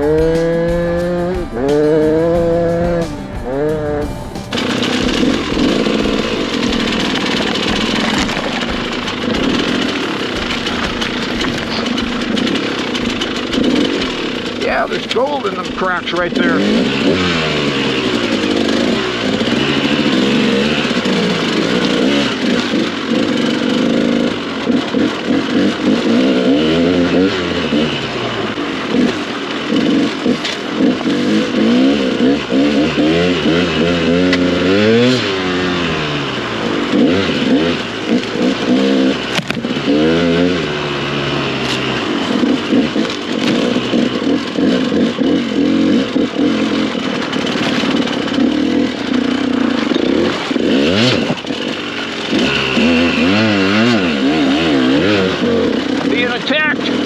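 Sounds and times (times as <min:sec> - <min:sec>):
dirt bike engine revving: 0:00.0 - 0:57.0
rocks knocking bike: 0:04.5 - 0:26.6, 0:37.0 - 0:40.2.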